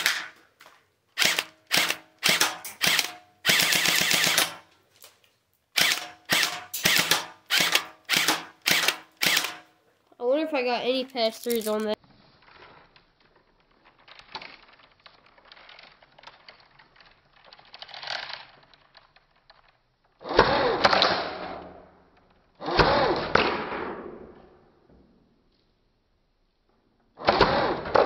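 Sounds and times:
airsoft gun bursts: 1.2 - 4.7, 5.7 - 9.7.

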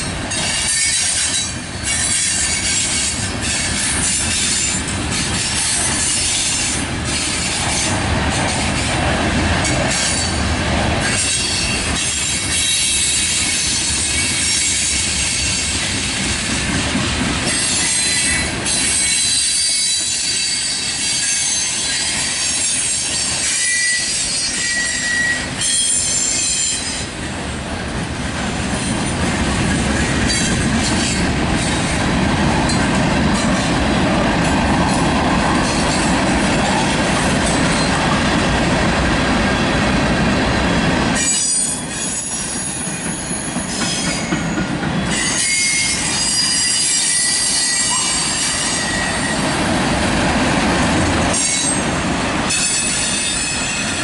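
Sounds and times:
freight train wheels rumbling: 0.0 - 54.0
high-pitched wheel squeals: 17.6 - 27.0, 45.1 - 49.5.

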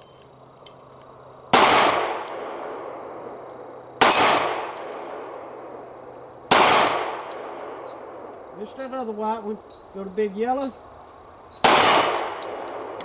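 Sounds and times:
pistol shots: 1.5 - 3.3, 4.0 - 5.8, 6.5 - 8.3, 11.6 - 13.0.

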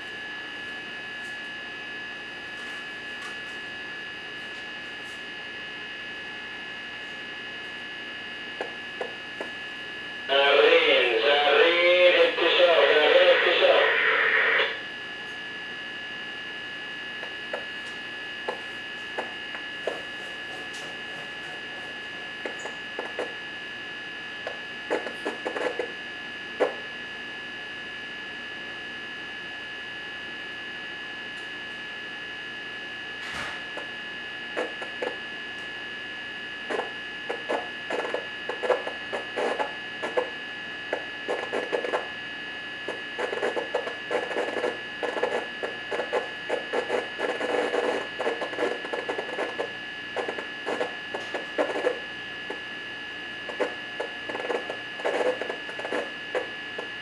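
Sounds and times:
high-pitched hum: 5.0 - 15.4.

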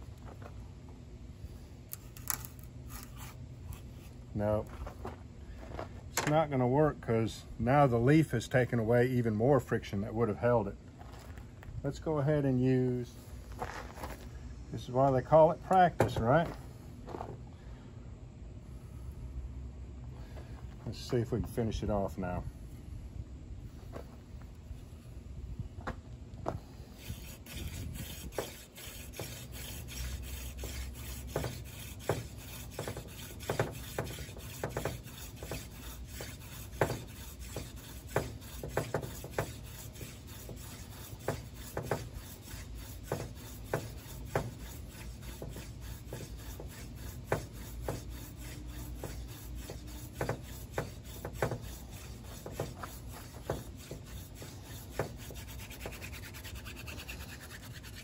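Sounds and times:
scratchy rubbing of hand drill: 26.9 - 58.0.

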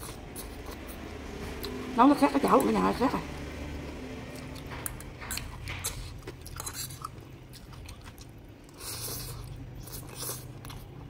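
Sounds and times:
chewing and slurping noodles: 0.0 - 1.8, 4.3 - 11.0.

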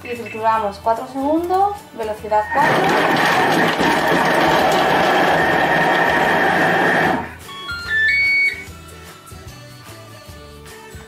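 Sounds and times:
quiet background music: 0.0 - 3.3, 7.3 - 11.0
food processor whirring: 2.5 - 7.4
beeping notes: 6.8 - 8.7.

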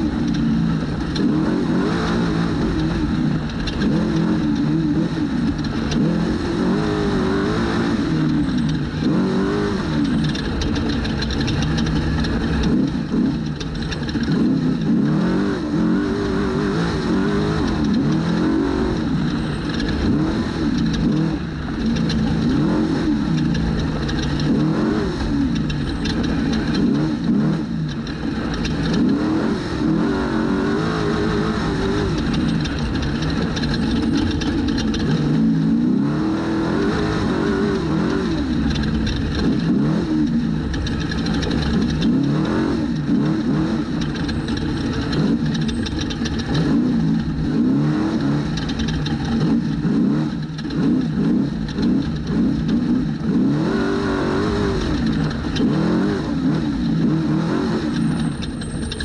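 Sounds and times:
truck engine revving hard: 0.0 - 59.0
short knocks and rattles: 10.0 - 14.9.

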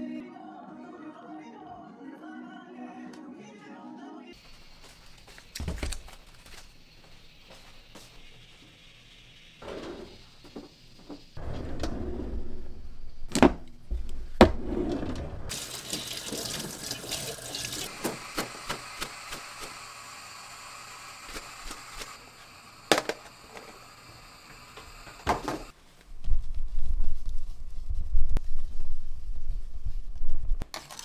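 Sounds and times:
tap water running into sink: 15.5 - 18.2.

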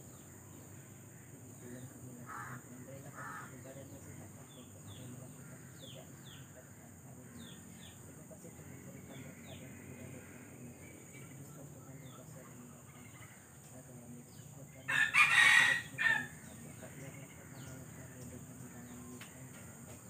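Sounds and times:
small birds chirping: 0.0 - 20.0
rooster crowing: 14.9 - 16.7.

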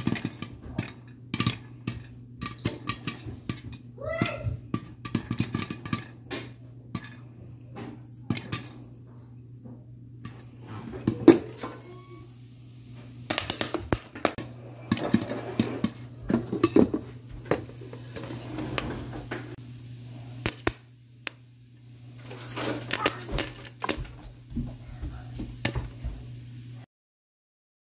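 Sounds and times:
metal pan and lid clattering: 0.0 - 3.8, 13.3 - 19.5
popcorn kernels popping: 0.0 - 7.3, 8.2 - 8.8, 13.2 - 18.3, 20.3 - 24.4, 25.5 - 26.4.

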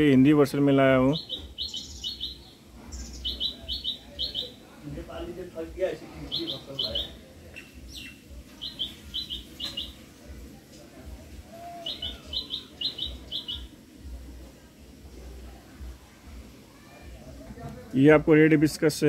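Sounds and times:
small bird chirping: 1.0 - 4.7, 6.2 - 10.4, 11.7 - 13.8.

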